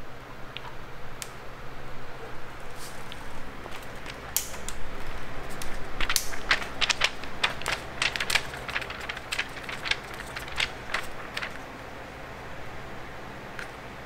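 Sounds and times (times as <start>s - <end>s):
faint steady hum: 0.0s - 14.0s
paper pages turning: 2.7s - 11.7s.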